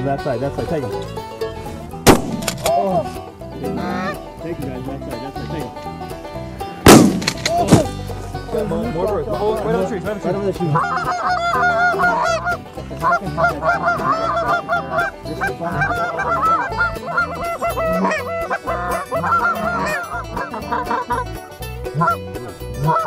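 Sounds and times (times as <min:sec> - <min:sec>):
geese honking and clucking: 0:03.6 - 0:04.2, 0:10.6 - 0:23.0.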